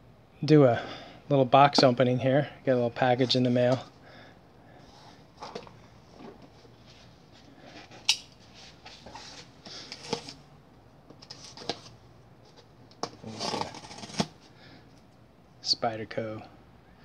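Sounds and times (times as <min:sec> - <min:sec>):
cardboard scraping and tearing: 0:13.2 - 0:14.4
knife slitting packing tape: 0:13.2 - 0:14.4.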